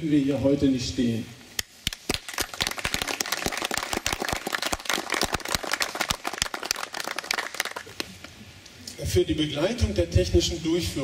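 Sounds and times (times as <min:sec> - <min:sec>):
crowd applauding: 0:01.9 - 0:08.2.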